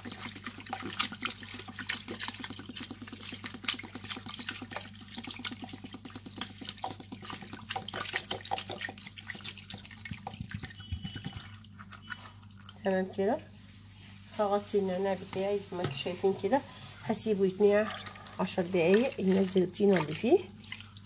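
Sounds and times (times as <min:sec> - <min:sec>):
water splashing in a basin: 0:00.0 - 0:12.9, 0:17.7 - 0:21.0.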